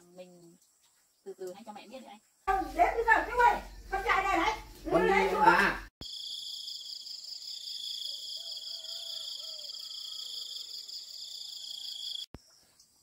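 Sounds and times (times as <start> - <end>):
insects chirping shrilly: 6.0 - 12.9.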